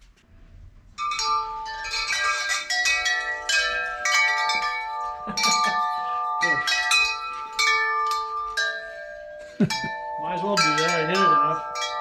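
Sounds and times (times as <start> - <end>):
metal tube wind chime ringing: 1.0 - 12.0.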